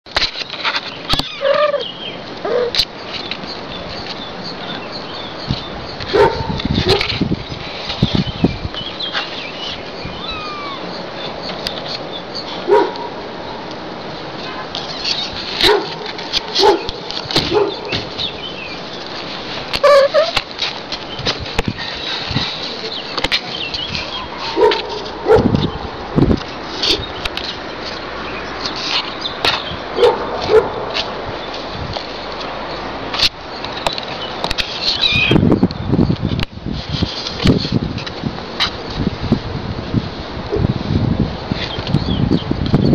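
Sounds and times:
small birds chirping: 0.3s - 13.7s, 16.2s - 20.4s, 21.0s - 30.7s, 31.3s - 36.4s, 41.6s - 42.9s
dog barking: 2.5s - 2.8s, 6.1s - 7.1s, 12.7s - 13.1s, 15.6s - 16.0s, 16.6s - 16.9s, 17.5s - 17.9s, 24.4s - 25.5s, 30.0s - 30.8s.

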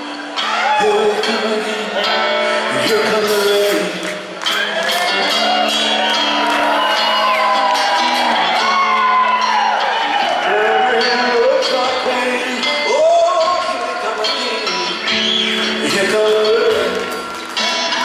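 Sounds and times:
live rock trio playing: 0.2s - 18.0s
audience whooping: 4.5s - 11.7s.

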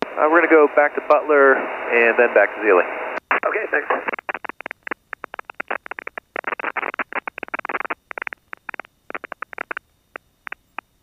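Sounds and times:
radio crackling bursts: 0.0s - 11.0s
radio clicks: 3.2s - 10.9s.

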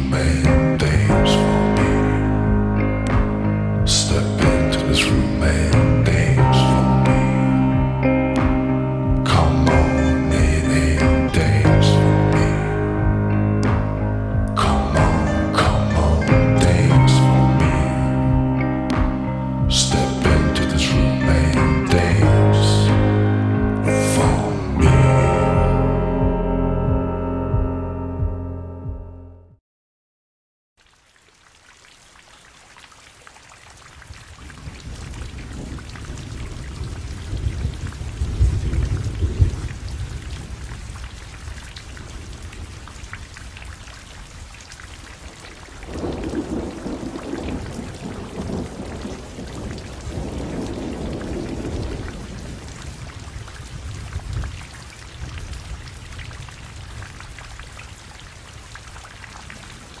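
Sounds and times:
steady rain falling: 0.0s - 25.8s, 30.8s - 60.0s
rolling thunder: 34.4s - 42.9s, 45.8s - 57.3s.

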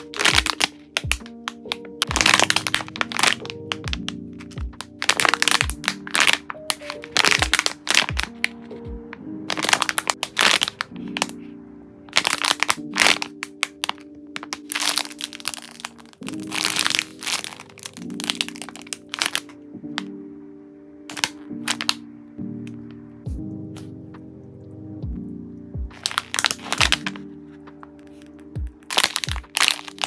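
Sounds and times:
plastic bags crinkling: 0.0s - 8.8s, 9.5s - 11.5s, 12.1s - 19.6s, 21.1s - 22.0s, 25.9s - 30.0s.

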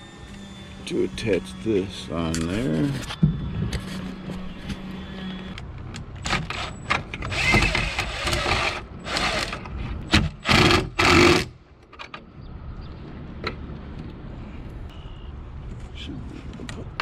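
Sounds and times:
cordless drill driving a screw: 6.2s - 9.6s, 10.4s - 11.5s.

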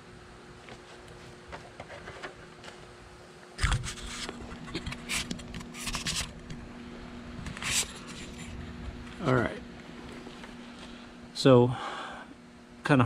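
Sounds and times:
camera handling noise: 3.6s - 6.6s.

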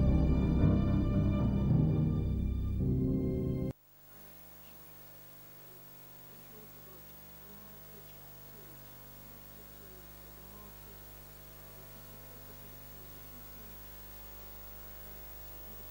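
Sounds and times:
faint mains hum with hiss: 3.7s - 15.9s.

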